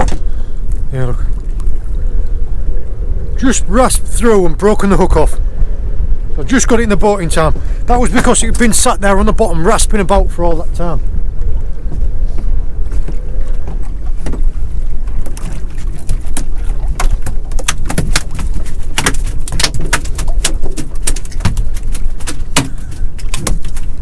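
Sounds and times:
steady low rumble: 0.0s - 24.0s
eel slapping in boat: 12.9s - 24.0s.

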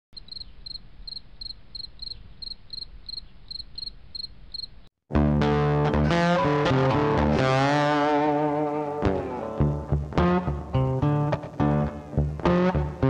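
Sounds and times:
cricket chirping: 0.2s - 4.9s
loud guitar music: 5.1s - 13.0s.

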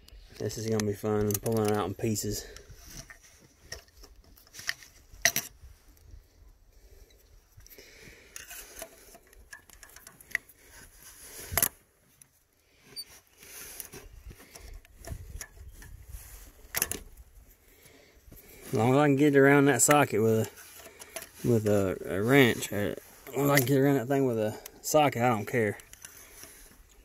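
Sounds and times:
pliers clicking and scraping metal: 0.4s - 5.6s, 8.3s - 10.6s, 19.8s - 23.8s.

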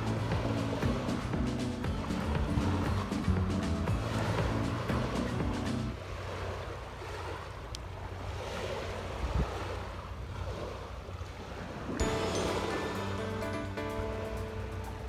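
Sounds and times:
background music: 0.0s - 6.0s, 12.0s - 15.0s
wind rumbling on microphone: 0.0s - 12.0s
waves washing onto sand: 0.0s - 15.0s.

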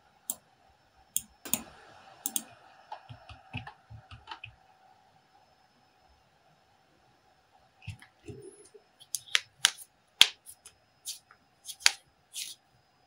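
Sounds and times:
keyboard and mouse clicks: 2.3s - 4.6s, 7.8s - 10.4s.

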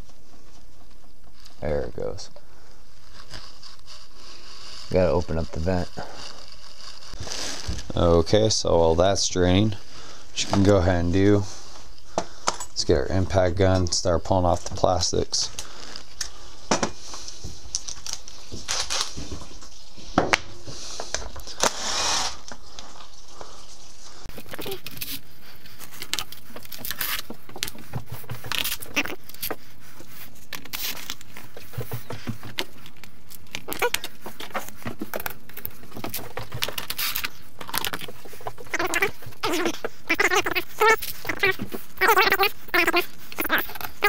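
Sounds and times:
plastic scraping: 24.3s - 44.0s.

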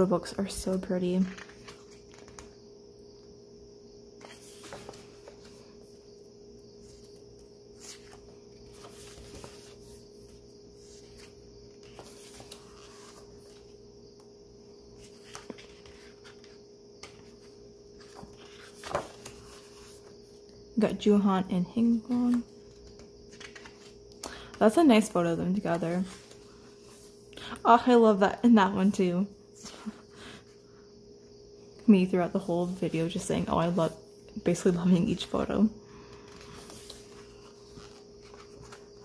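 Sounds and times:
faint hum: 0.0s - 39.0s
book pages rustling: 0.6s - 2.6s, 4.2s - 6.1s, 6.8s - 14.3s, 14.9s - 20.5s, 22.0s - 24.6s, 25.6s - 27.2s, 36.0s - 39.0s.

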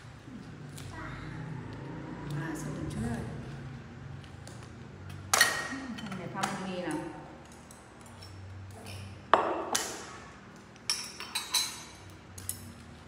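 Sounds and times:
metal spoon clinking bowl: 10.8s - 12.7s.

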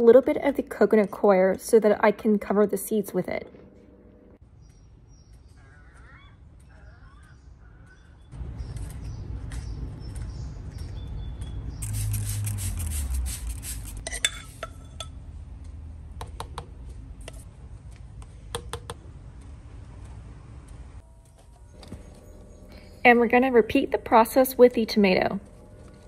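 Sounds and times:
spray bottle misting: 11.8s - 14.1s.

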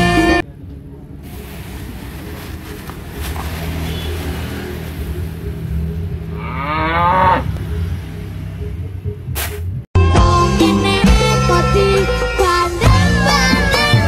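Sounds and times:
cow mooing: 6.4s - 7.6s.

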